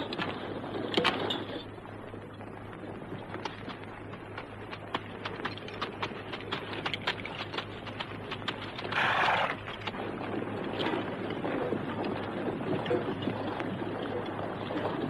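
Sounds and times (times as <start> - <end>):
horse hooves clip-clopping: 0.0 - 15.0
rush of noise: 7.2 - 11.1.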